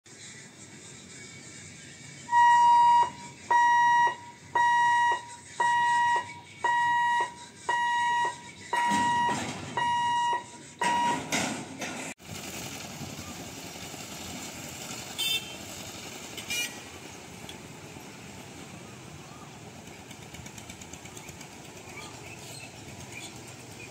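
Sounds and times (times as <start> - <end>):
motorcycles and light traffic: 0.1 - 23.9
level crossing hooter beeps: 2.3 - 11.4.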